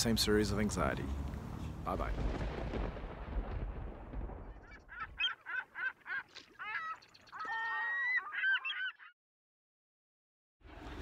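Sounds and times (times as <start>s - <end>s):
geese honking: 4.7s - 9.1s.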